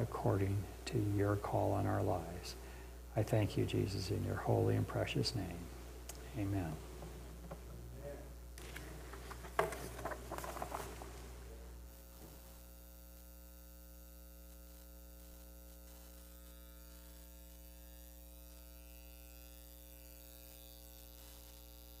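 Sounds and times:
electrical mains hum: 0.0s - 22.0s
soft clicks and rustles: 8.6s - 11.3s.

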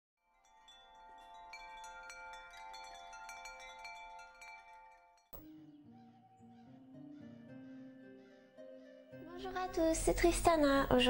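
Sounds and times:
wind chimes ringing: 0.3s - 5.4s.

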